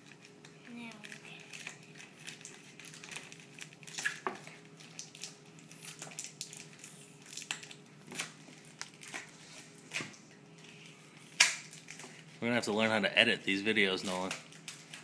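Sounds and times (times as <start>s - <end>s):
plastic wrapping crinkling: 0.0s - 12.6s, 13.8s - 15.0s.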